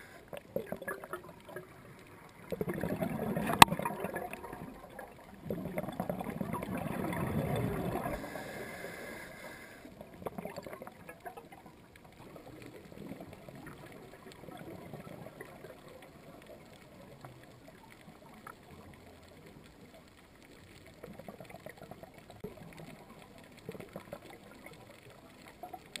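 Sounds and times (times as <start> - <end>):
regulator inhale hiss: 0.0 - 0.3, 8.0 - 10.0
exhaled bubbles rumbling underwater: 0.0 - 26.0
faint crackling and clicks: 0.0 - 26.0.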